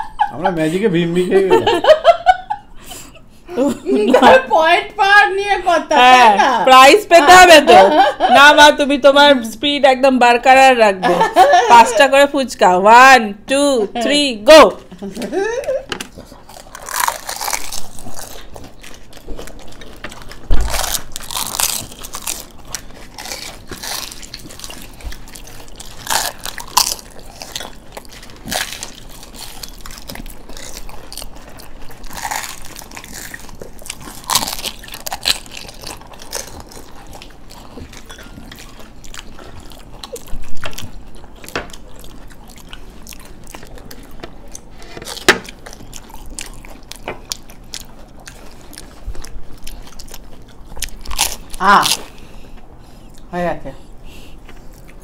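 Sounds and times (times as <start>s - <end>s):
chewing: 16.1s - 53.3s, 54.3s - 55.0s
crisp shells crunching: 16.5s - 18.5s, 19.4s - 37.4s.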